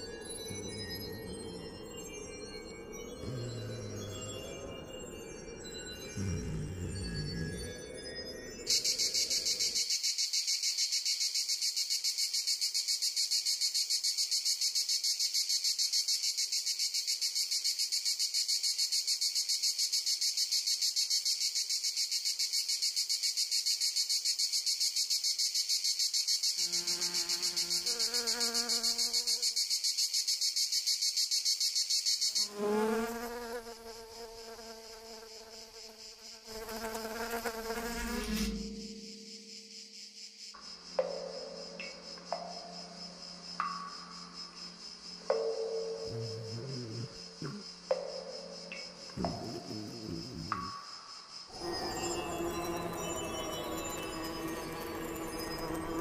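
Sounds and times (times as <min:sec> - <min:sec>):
insects chirring: 0:00.0 - 0:56.0.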